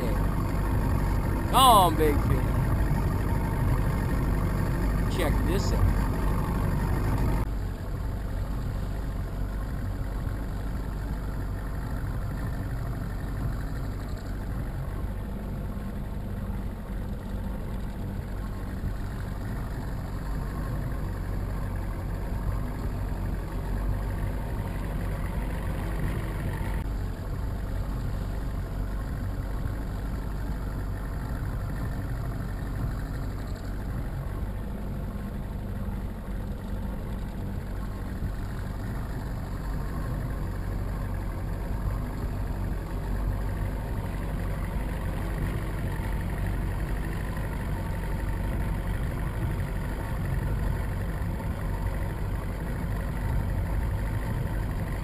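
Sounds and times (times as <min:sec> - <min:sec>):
boat engine humming: 0:00.0 - 0:55.0.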